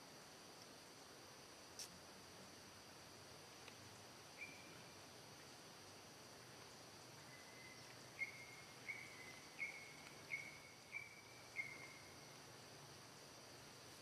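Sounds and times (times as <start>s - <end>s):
faint hum of insects: 0.0s - 14.0s
high whistled animal calls: 7.3s - 12.2s.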